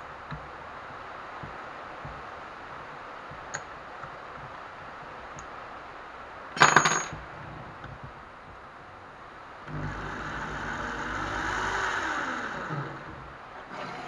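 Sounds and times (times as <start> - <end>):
chuck key clattering on bench: 6.6 - 7.2.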